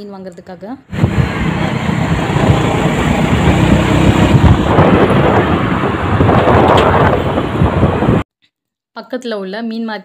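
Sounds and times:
motorcycle engine: 0.9s - 8.2s
wind buffeting microphone: 0.9s - 8.2s.

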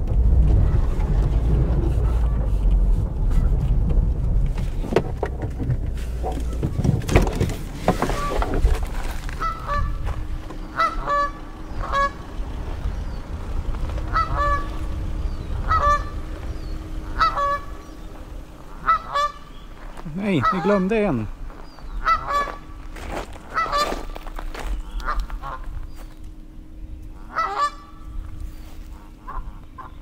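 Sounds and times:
faint steady hum: 0.0s - 30.0s
low rumble: 0.0s - 30.0s
geese honking: 7.9s - 8.6s, 9.2s - 26.2s, 27.0s - 30.0s.

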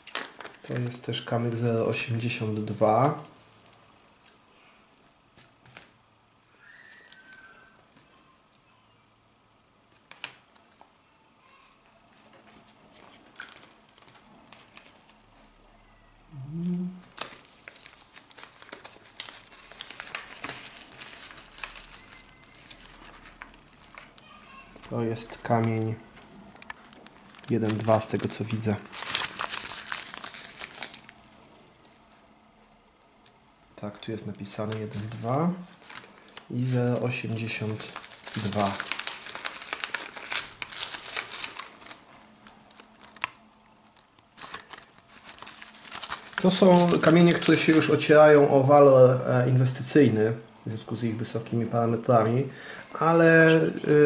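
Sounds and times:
paper rustling and crinkling: 0.0s - 1.0s, 11.5s - 15.4s, 17.0s - 31.6s, 34.5s - 48.2s
person humming: 16.3s - 17.0s.

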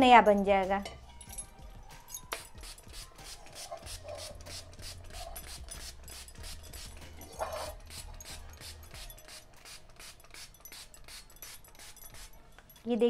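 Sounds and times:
trigger spray bottle squirts: 2.3s - 12.3s.

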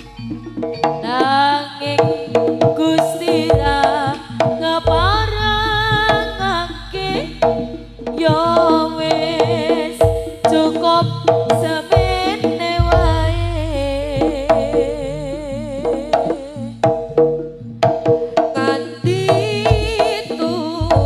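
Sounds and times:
hand drum strokes: 0.0s - 21.0s
deep gong tones: 4.8s - 8.6s, 12.8s - 16.1s.

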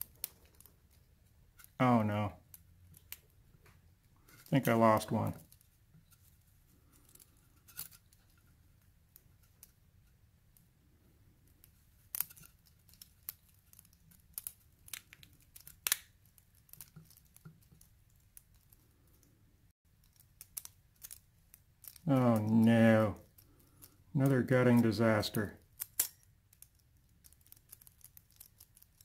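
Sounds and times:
small clicks of lock handling: 20.0s - 22.0s, 23.2s - 24.0s, 25.6s - 29.0s.

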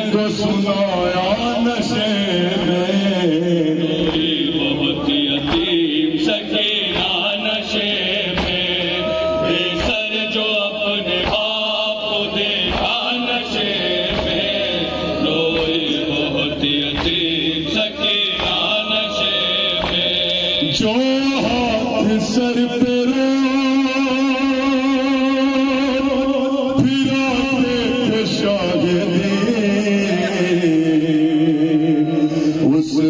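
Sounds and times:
voices chanting a lament: 0.0s - 33.0s
regular beat: 11.0s - 20.9s.

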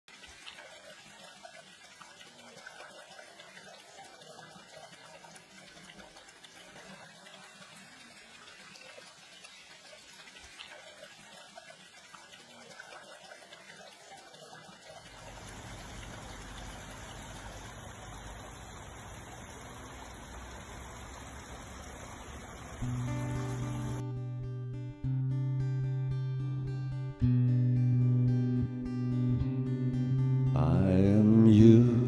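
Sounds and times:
fountain water splashing: 0.1s - 24.1s.

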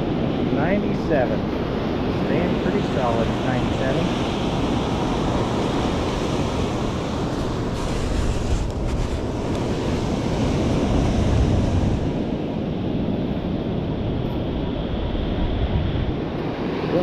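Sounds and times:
surf washing on beach: 0.0s - 17.0s
wind buffeting microphone: 0.0s - 17.0s
short scrapes: 7.7s - 9.2s.

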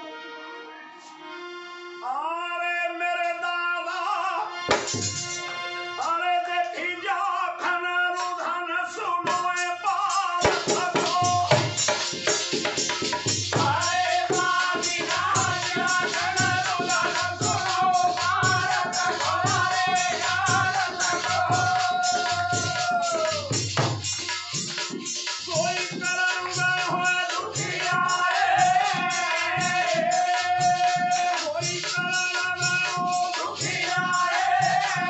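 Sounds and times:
harmonium melody: 0.0s - 7.8s
jingling metal percussion: 4.6s - 35.0s.

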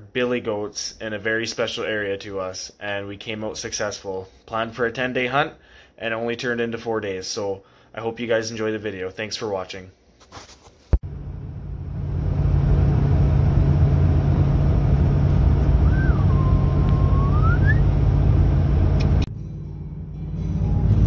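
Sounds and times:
vehicle road and engine noise: 11.0s - 21.0s
whistle-like tone: 15.8s - 18.0s.

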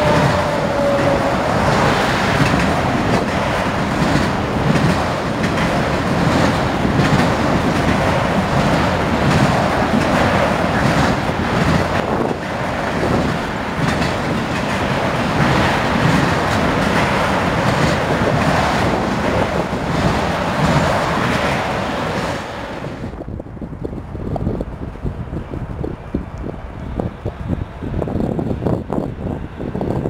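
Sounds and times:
wheels clacking over rail joints: 0.0s - 23.2s
freight train rumbling past: 0.0s - 30.0s.

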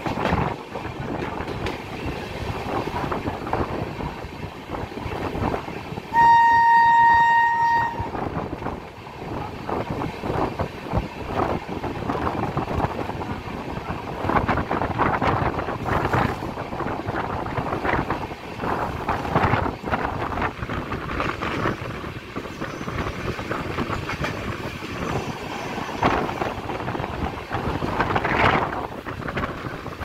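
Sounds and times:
moving train rumbling: 0.0s - 30.0s
train horn blast: 6.1s - 8.2s.

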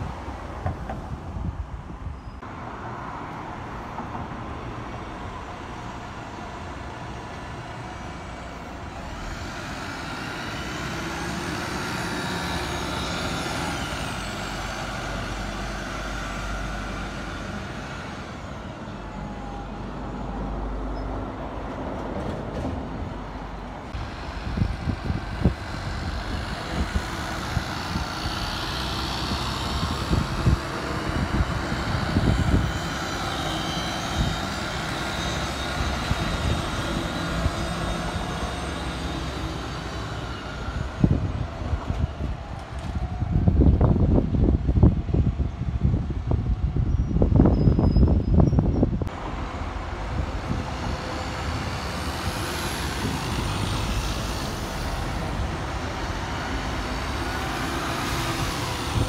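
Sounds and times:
wind buffeting microphone: 0.0s - 2.4s, 23.9s - 38.7s, 40.0s - 59.0s
bus engine and tyre noise: 0.0s - 59.0s.

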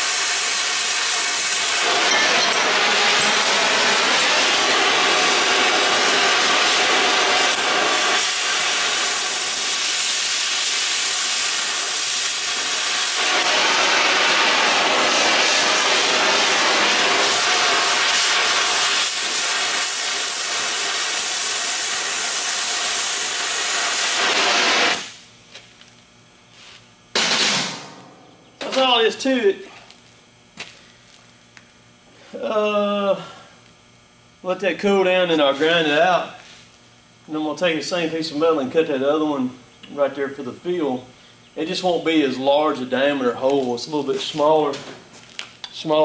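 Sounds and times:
cutting torch hissing: 0.0s - 25.2s.

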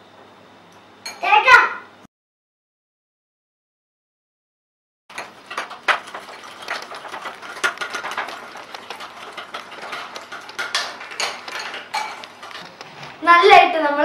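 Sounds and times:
spoon whisking in ceramic bowl: 5.1s - 12.8s.

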